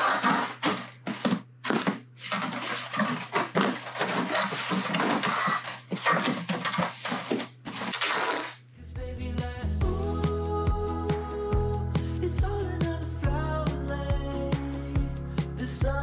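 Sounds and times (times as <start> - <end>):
packing tape pulled off roll: 0.0 - 1.0, 1.7 - 8.6
cardboard scrapes and knocks: 0.0 - 8.5.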